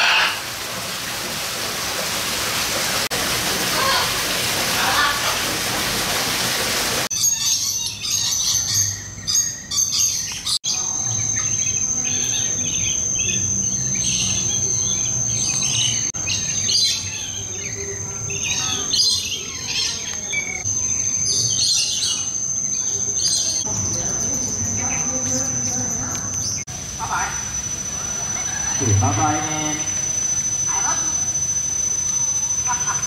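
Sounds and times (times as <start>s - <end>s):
birds chirping and calling: 0.0s - 0.7s, 7.1s - 29.7s
high-pitched whine: 10.6s - 33.0s.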